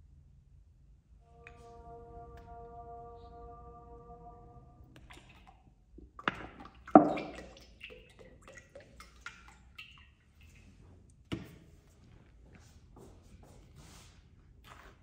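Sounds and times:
oil pouring into a pot: 0:05.0 - 0:10.6
oil dripping: 0:05.0 - 0:11.2.

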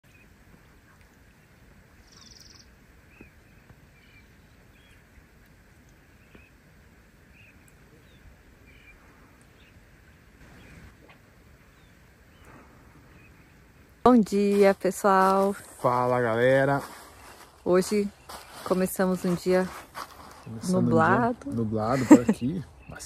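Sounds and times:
bird chirping: 0:00.0 - 0:05.1, 0:07.3 - 0:09.8, 0:21.5 - 0:23.0.

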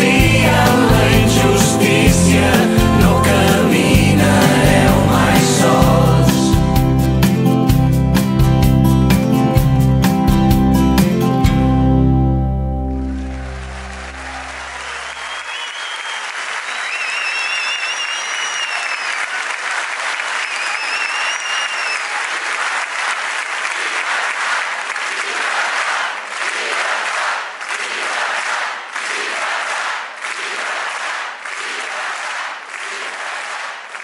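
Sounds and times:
crowd applauding and cheering: 0:00.0 - 0:07.6, 0:12.6 - 0:34.0
high arching whistles: 0:14.8 - 0:19.4, 0:20.5 - 0:22.1.

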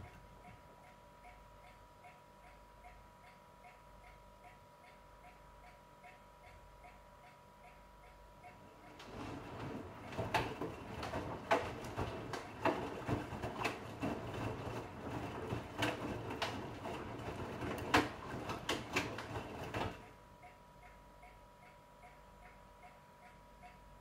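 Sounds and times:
knocks and clicks: 0:08.5 - 0:20.1
washing machine drum turning: 0:08.6 - 0:20.2
laundry tumbling: 0:09.0 - 0:20.0.

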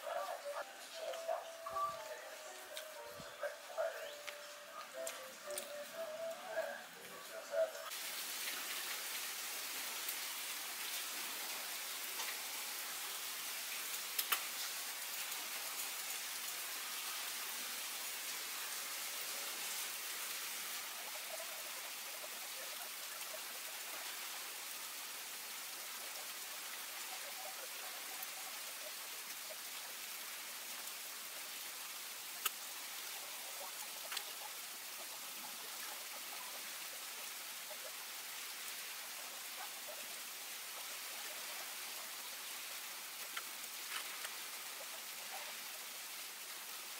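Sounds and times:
steady hiss: 0:00.0 - 0:46.9
faint clicks: 0:14.1 - 0:14.5, 0:32.4 - 0:32.6, 0:34.0 - 0:34.5, 0:43.2 - 0:44.4.

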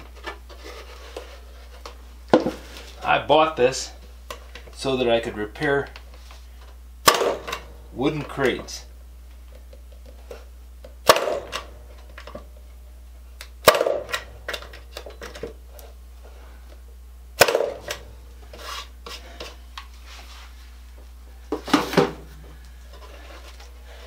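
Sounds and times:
electric nailer firing: 0:07.0 - 0:07.7, 0:11.0 - 0:11.8, 0:13.6 - 0:14.7, 0:17.4 - 0:18.1.

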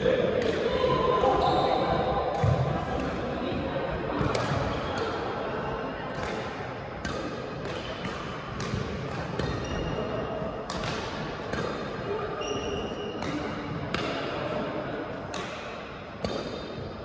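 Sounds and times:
court shoes squeaking: 0:00.4 - 0:03.1, 0:04.2 - 0:14.6
badminton racket hitting shuttlecock: 0:06.2 - 0:09.9, 0:10.6 - 0:12.0, 0:15.2 - 0:16.8.

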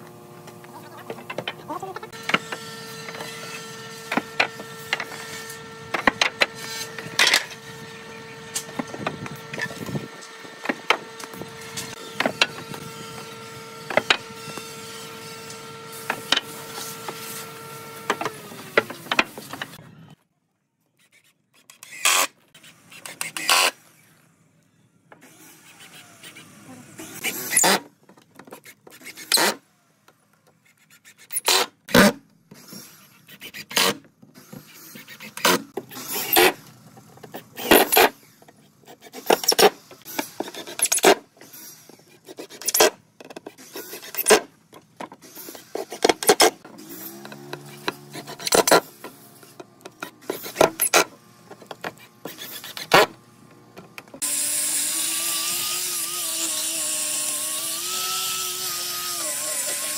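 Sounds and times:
angle grinder whine: 0:00.0 - 0:20.1, 0:45.3 - 0:53.2, 0:53.8 - 0:59.9
power driver driving screws into wood: 0:21.6 - 0:24.1, 0:25.1 - 0:28.0, 0:28.6 - 0:29.6, 0:31.3 - 0:53.2.

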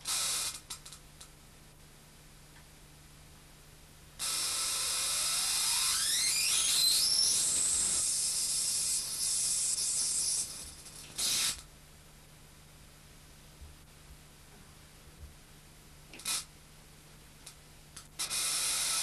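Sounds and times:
spark discharge hiss: 0:00.0 - 0:01.0, 0:04.2 - 0:11.7, 0:16.2 - 0:16.5, 0:18.0 - 0:19.0
whine rising in pitch: 0:04.9 - 0:08.0.

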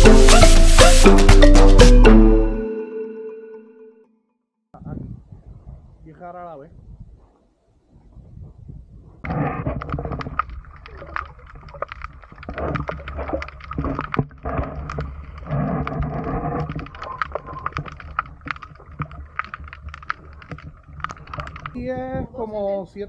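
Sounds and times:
low underwater rumble: 0:08.4 - 0:22.4
sharp clicks and crackles: 0:09.4 - 0:21.8.

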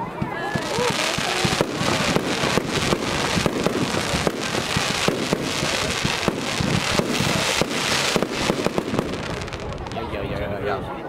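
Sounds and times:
fireworks bangs and pops: 0:00.0 - 0:10.5
fireworks hiss and crackle: 0:00.1 - 0:10.5.

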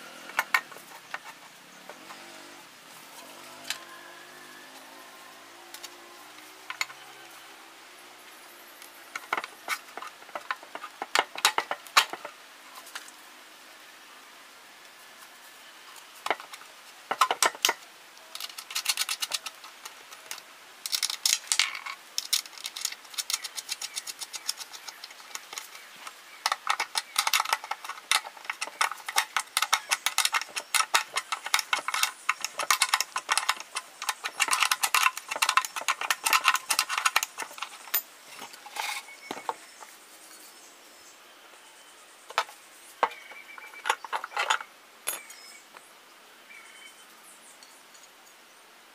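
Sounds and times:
metallic clicking and rattling: 0:09.1 - 0:12.3, 0:16.2 - 0:39.9, 0:42.3 - 0:45.3.

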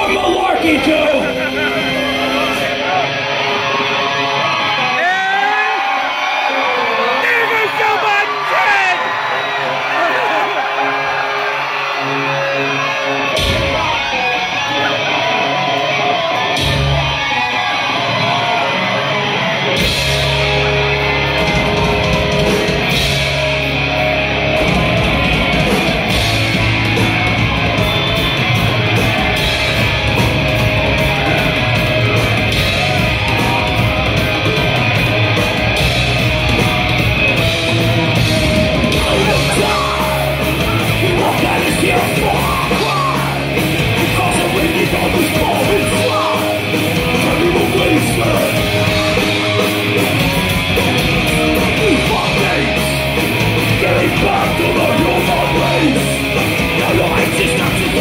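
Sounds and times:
heavy metal band playing live: 0:00.0 - 0:58.0.

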